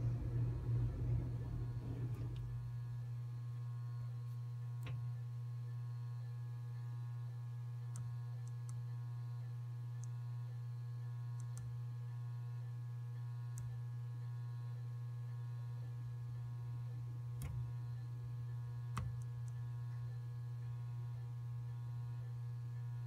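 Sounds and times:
electrical hum with high whine: 0:00.0 - 0:23.0.

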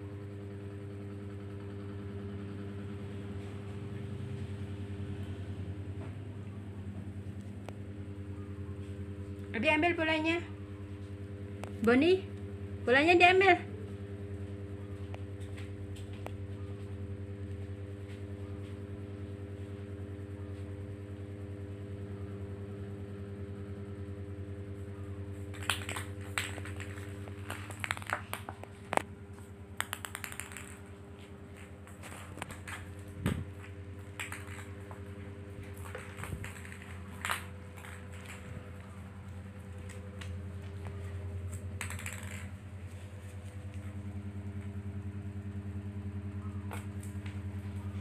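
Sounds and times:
steady low hum: 0:00.0 - 0:48.0
ball clattering on tiled floor: 0:25.0 - 0:45.0, 0:46.5 - 0:48.0.

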